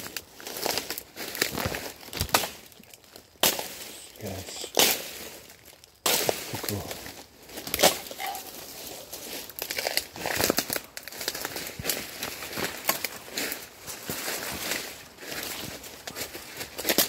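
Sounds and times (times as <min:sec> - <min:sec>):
footsteps crunching dry leaves: 0:00.0 - 0:17.0
dead sticks snapping: 0:00.1 - 0:03.9, 0:04.6 - 0:06.5, 0:07.6 - 0:08.2.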